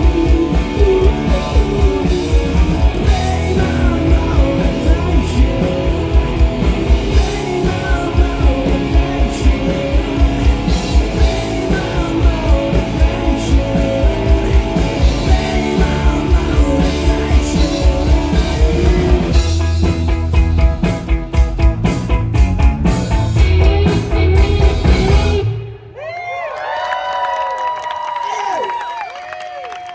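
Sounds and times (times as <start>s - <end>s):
man singing: 0.0s - 19.6s
drum kit driving beat: 0.0s - 25.6s
distorted electric guitar: 0.0s - 25.9s.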